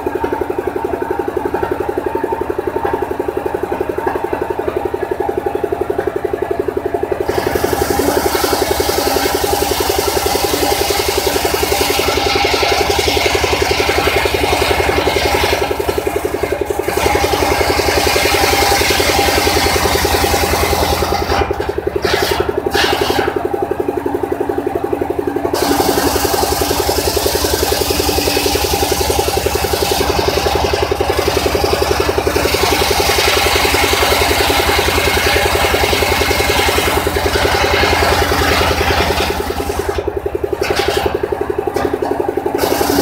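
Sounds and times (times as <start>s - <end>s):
saw engine running: 0.0s - 43.0s
saw blade cutting wood: 7.2s - 23.4s, 25.6s - 40.0s, 40.6s - 41.2s, 42.6s - 43.0s.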